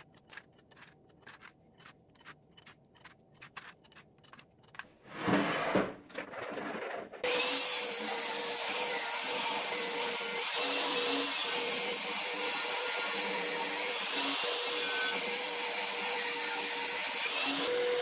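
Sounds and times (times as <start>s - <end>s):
abacus beads clicking: 0.0s - 4.8s
loud scraping: 0.0s - 7.2s.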